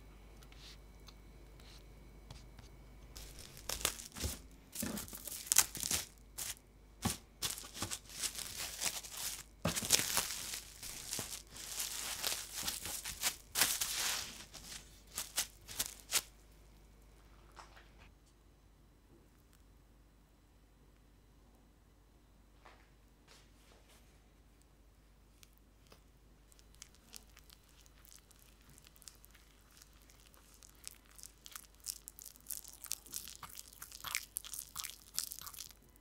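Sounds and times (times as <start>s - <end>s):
cling wrap crackling and rustling: 3.2s - 16.3s, 25.4s - 35.9s.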